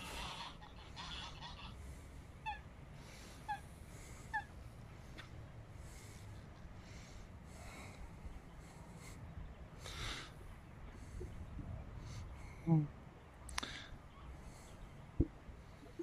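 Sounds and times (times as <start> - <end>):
coot calling: 0.0 - 4.6.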